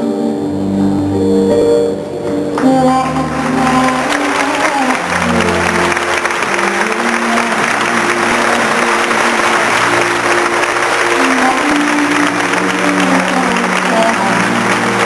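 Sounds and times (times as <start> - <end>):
instrumental music with held notes: 0.0 - 15.0
audience applause: 2.6 - 15.0.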